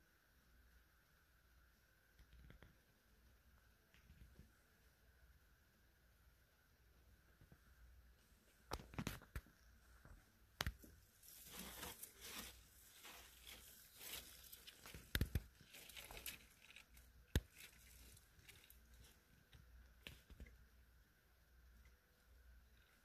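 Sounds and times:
paper and plastic rustling: 0:10.8 - 0:19.2.

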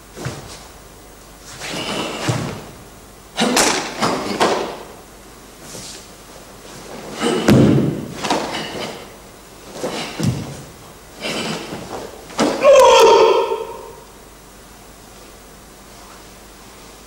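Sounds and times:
bare feet stamping on wooden floor: 0:07.2 - 0:08.5, 0:09.8 - 0:10.7.

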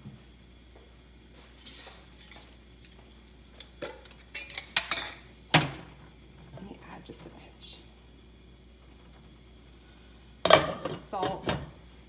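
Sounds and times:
kitchenware clinking and clattering: 0:03.8 - 0:05.3.

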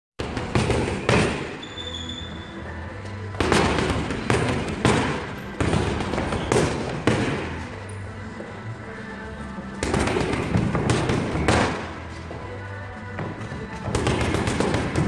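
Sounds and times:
gloves punching a punch bag: 0:00.2 - 0:01.6, 0:03.3 - 0:07.7, 0:09.8 - 0:12.0, 0:13.2 - 0:15.0
background music: 0:00.2 - 0:15.0.

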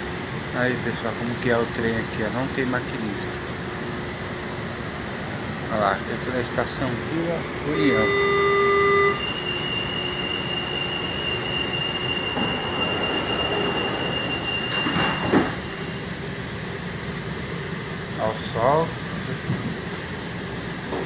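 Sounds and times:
monorail car whine and rumble: 0:00.0 - 0:21.0
loud electronic beep: 0:07.7 - 0:16.0.

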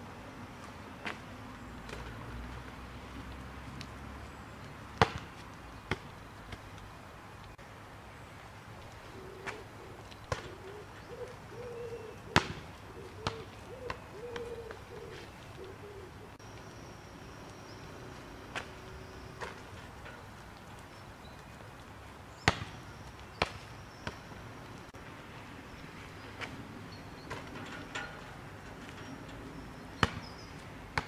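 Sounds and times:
basketball bouncing on stone paving: 0:05.0 - 0:06.7, 0:10.2 - 0:10.6, 0:12.3 - 0:14.8, 0:22.4 - 0:24.4, 0:29.8 - 0:31.0.

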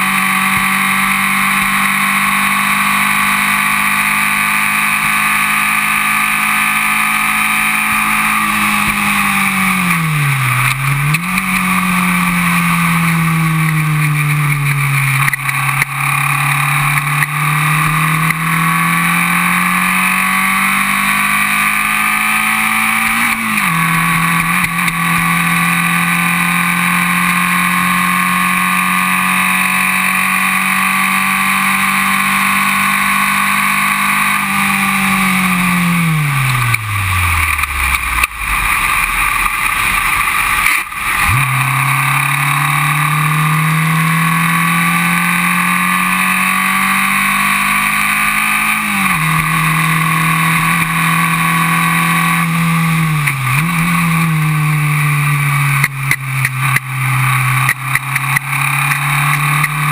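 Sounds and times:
racing car engine at full throttle: 0:00.0 - 0:59.9.

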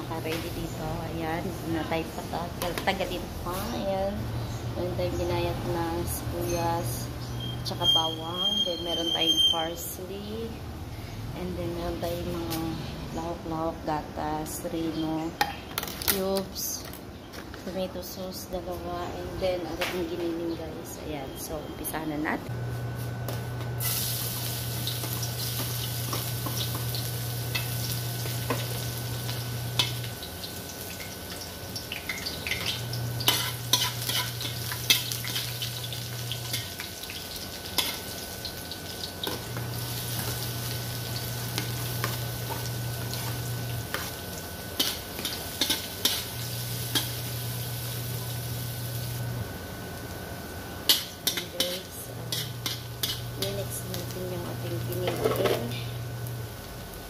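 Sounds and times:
garlic and onion sizzling in wok: 0:00.0 - 0:13.0, 0:21.8 - 0:57.0
metal spoon scraping pan: 0:33.2 - 0:35.5, 0:50.9 - 0:53.6.

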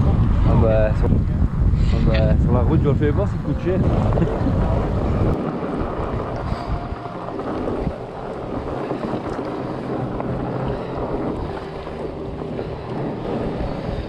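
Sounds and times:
wind noise on microphone: 0:00.0 - 0:14.0
bike tyres rolling on dirt: 0:02.4 - 0:14.0.

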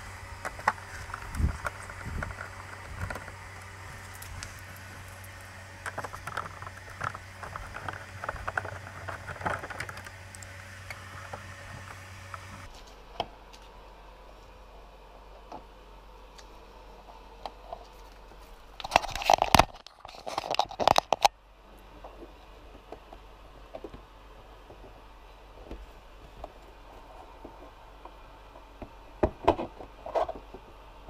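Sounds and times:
low hum: 0:00.0 - 0:31.0
plastic parts clicking and knocking: 0:05.8 - 0:10.2, 0:18.8 - 0:21.3.

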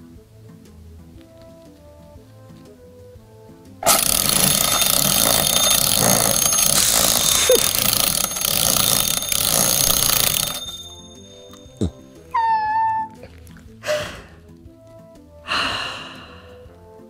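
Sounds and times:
alarm clock going off: 0:03.8 - 0:13.0.

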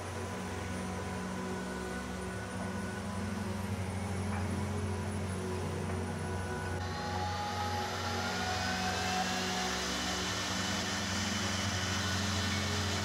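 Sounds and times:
low hum: 0:00.0 - 0:13.0
router motor whine: 0:06.8 - 0:13.0.

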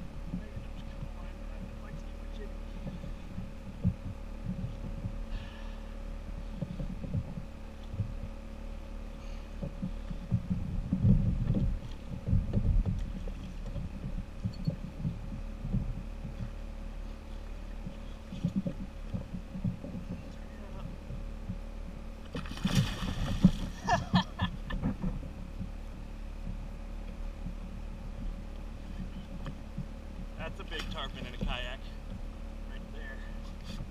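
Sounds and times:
dull low knocks: 0:00.0 - 0:32.4
fish splashing at water surface: 0:22.3 - 0:23.8.

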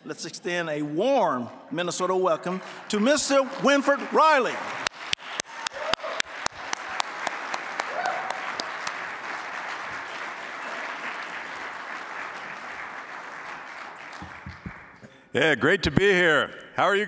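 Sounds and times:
audience applauding: 0:02.6 - 0:15.1
close sharp claps: 0:03.3 - 0:15.2.

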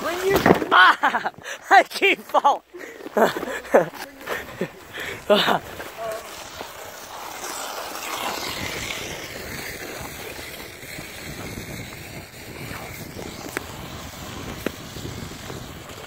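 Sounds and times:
wind buffeting microphone: 0:08.3 - 0:16.0.

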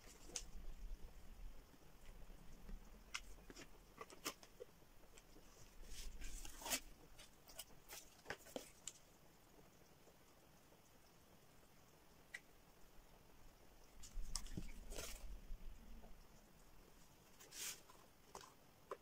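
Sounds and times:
cardboard rustle: 0:03.1 - 0:04.6, 0:05.4 - 0:08.8.

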